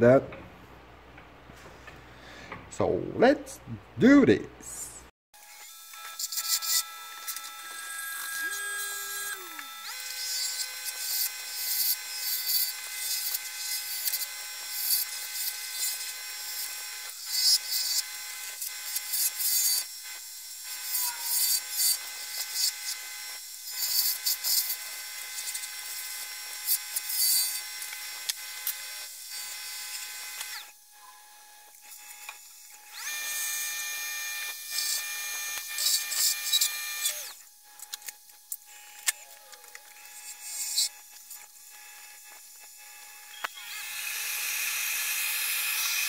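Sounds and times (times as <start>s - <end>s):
wood lathe whining: 5.4s - 18.0s, 31.8s - 38.0s, 38.7s - 46.0s.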